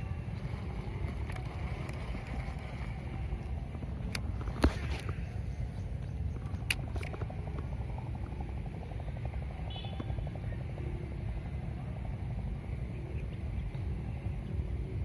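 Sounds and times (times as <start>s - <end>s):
fishing reel cranking: 0.2s - 5.1s
sharp handling clicks: 4.0s - 5.2s, 6.4s - 7.7s.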